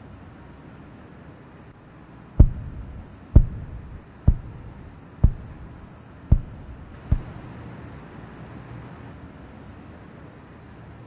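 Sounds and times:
heavy footsteps of work boots: 0:02.4 - 0:07.4.

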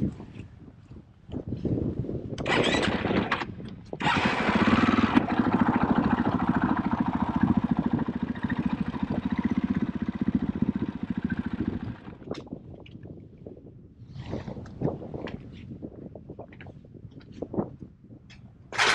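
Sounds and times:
motorcycle engine running: 0:02.4 - 0:12.3.

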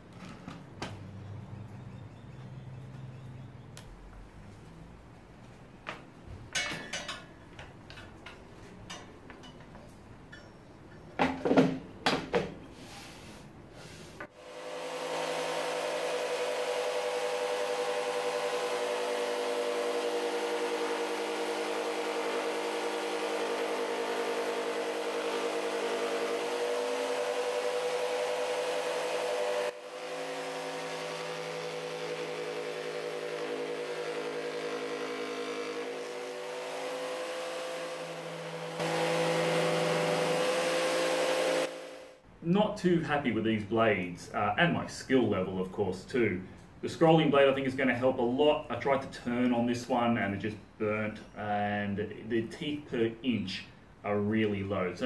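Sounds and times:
jigsaw cutting wood: 0:14.3 - 0:42.2.

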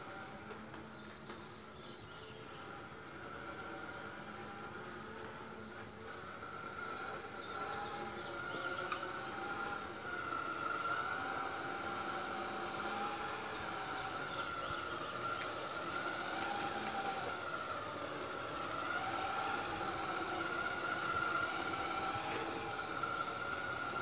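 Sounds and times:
toy truck motor whine: 0:00.0 - 0:24.0.

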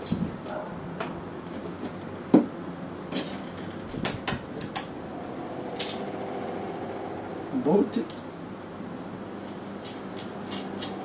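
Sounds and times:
steel parts clinking: 0:09.4 - 0:11.0.

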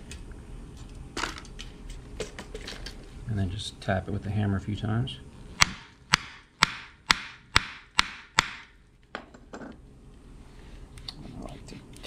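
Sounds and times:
hammer striking hole punch: 0:05.6 - 0:08.7.

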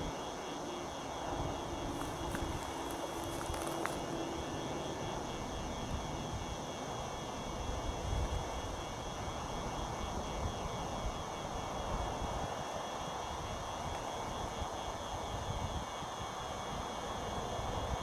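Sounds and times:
diesel locomotive engines droning: 0:00.0 - 0:12.5.

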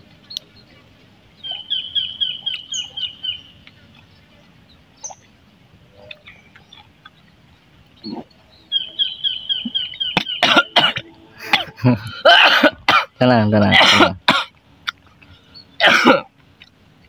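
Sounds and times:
short higher bird calls: 0:01.4 - 0:03.7, 0:08.0 - 0:10.8
bird chirping rapidly: 0:01.4 - 0:05.4, 0:06.0 - 0:10.8.

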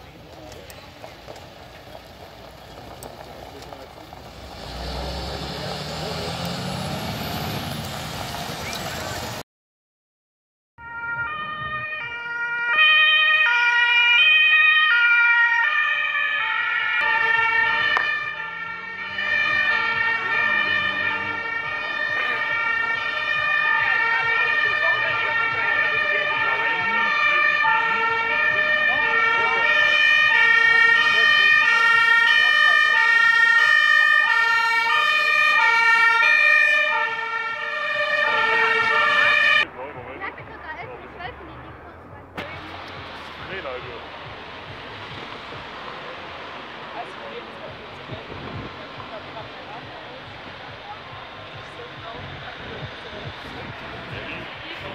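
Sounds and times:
vehicle engine rising in pitch: 0:04.2 - 0:09.4, 0:17.0 - 0:39.8
two-tone emergency siren: 0:10.8 - 0:39.7.

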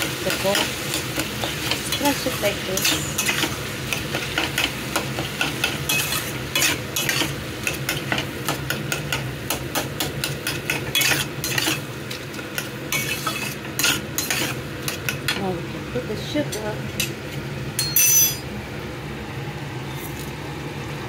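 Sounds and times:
vegetables sizzling: 0:00.0 - 0:17.8
metal spatula scraping a pan: 0:00.3 - 0:07.8, 0:10.2 - 0:12.2, 0:12.9 - 0:15.1.

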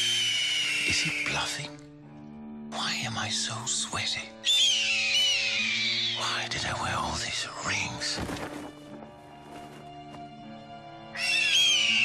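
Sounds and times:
hawk screeching: 0:00.0 - 0:01.6, 0:04.4 - 0:06.5, 0:11.1 - 0:12.0
background music: 0:00.0 - 0:12.0.

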